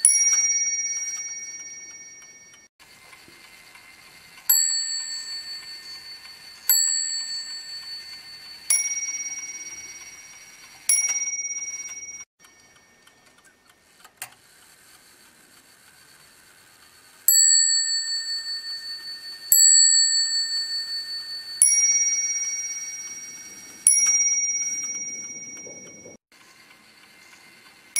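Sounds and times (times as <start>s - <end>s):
clock mechanism click: 0.1s - 17.0s
higher-pitched clock bell strokes: 4.5s - 12.9s, 17.3s - 26.2s
lower-pitched clock bell strokes: 4.5s - 13.0s, 17.3s - 26.2s.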